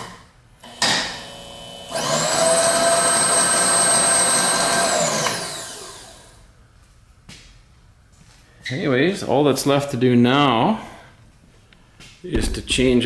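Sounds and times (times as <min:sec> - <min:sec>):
milling machine motor whining: 0:00.7 - 0:06.4.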